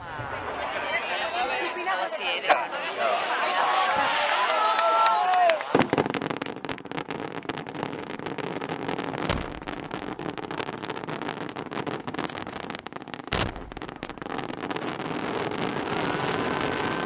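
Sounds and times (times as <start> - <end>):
loud firework bangs: 5.5 - 17.0
firework rockets bursting: 5.6 - 17.0.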